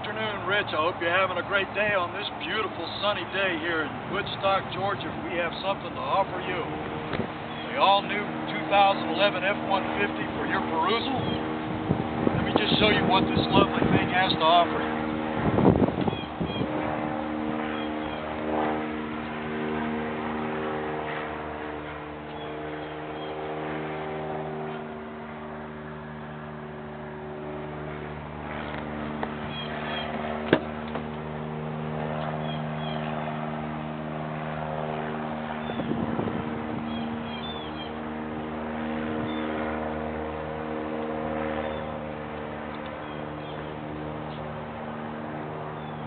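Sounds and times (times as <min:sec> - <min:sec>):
birds chirping: 0:00.0 - 0:19.4, 0:21.0 - 0:23.6, 0:27.9 - 0:31.3, 0:32.0 - 0:33.6, 0:35.0 - 0:40.0, 0:41.0 - 0:44.6, 0:45.6 - 0:46.0
vehicle idling hum: 0:00.0 - 0:46.0.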